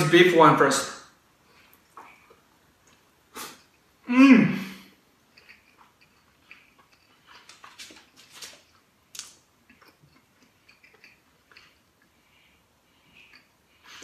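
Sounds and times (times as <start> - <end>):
faint close-up chewing: 5.2 - 14.0
wet mouth clicks and lip smacks: 9.1 - 11.8.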